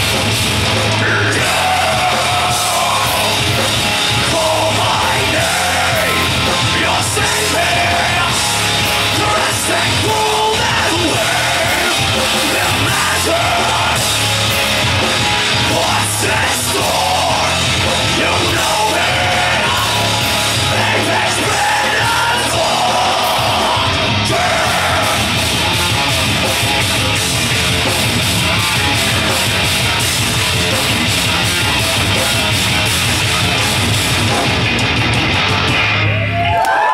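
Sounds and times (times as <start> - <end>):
bass guitar: 0.0 - 36.9
distorted electric guitars: 0.0 - 36.9
drums: 0.0 - 36.9
harsh screamed vocals: 1.0 - 14.2, 15.6 - 25.4, 36.0 - 36.9.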